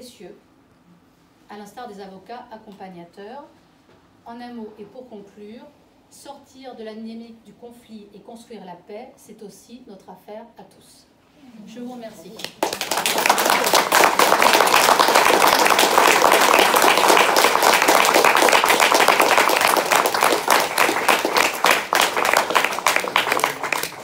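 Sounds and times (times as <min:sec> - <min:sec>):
audience clapping: 0:12.4 - 0:24.0.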